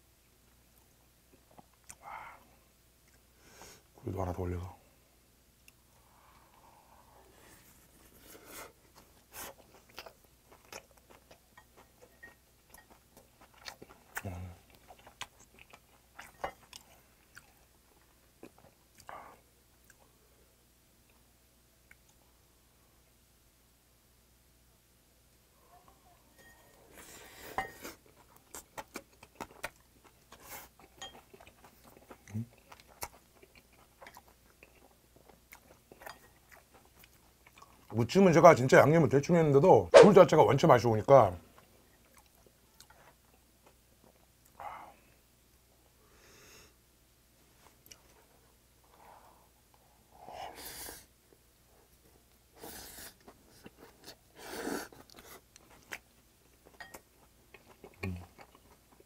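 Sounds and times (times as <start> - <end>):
close-miked wet chewing: 8.1 - 20.1, 26.9 - 38.2, 41.5 - 44.6, 51.3 - 59.0.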